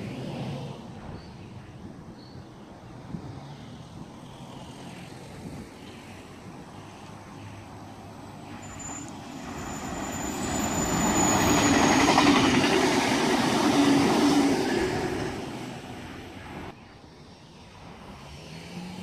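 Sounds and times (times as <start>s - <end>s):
high-pitched train squeal: 8.4s - 16.6s
electric train rumbling past: 8.5s - 16.8s.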